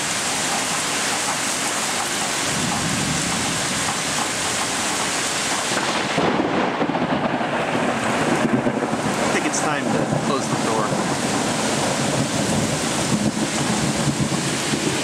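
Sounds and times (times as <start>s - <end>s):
heavy rain pouring: 0.0s - 15.0s
thunder rumble: 2.4s - 15.0s.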